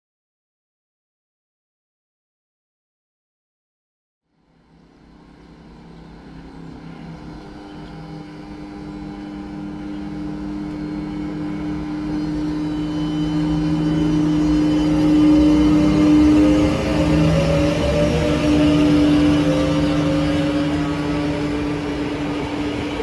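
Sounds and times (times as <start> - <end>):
electric locomotive hum: 4.4 - 23.0
rising whine: 4.7 - 23.0
wheels rumbling on rail: 4.8 - 23.0.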